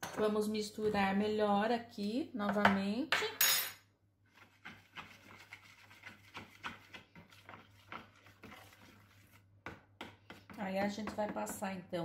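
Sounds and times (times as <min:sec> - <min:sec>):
spoon scraping in a plastic bowl: 0:04.3 - 0:09.4.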